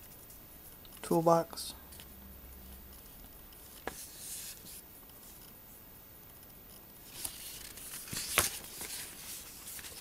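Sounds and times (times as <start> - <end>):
paper page rustling: 3.8 - 4.8, 7.1 - 10.0.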